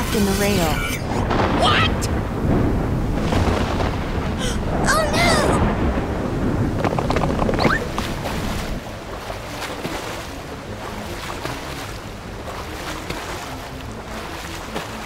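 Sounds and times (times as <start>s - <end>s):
steady rain: 0.0s - 15.0s
floodwater sloshing: 5.6s - 15.0s.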